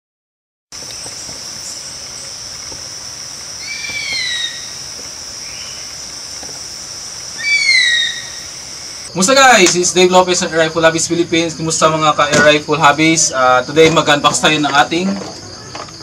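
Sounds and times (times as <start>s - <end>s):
crickets droning: 0.7s - 16.0s
bird whistled calls: 3.6s - 4.8s, 5.4s - 5.9s, 7.4s - 9.0s.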